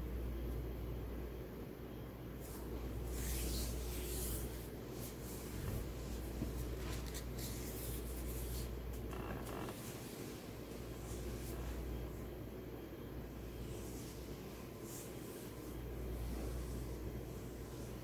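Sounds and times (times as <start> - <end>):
room noise hum: 0.0 - 18.0
rustling and rubbing: 2.4 - 12.2, 13.4 - 18.0.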